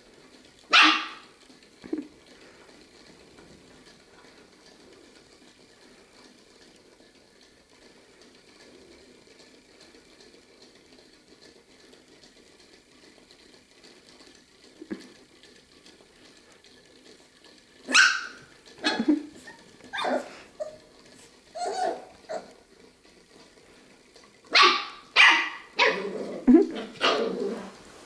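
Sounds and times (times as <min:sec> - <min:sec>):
puppy yapping: 0:00.7 - 0:01.3, 0:17.9 - 0:20.8, 0:21.6 - 0:22.6, 0:24.5 - 0:27.5.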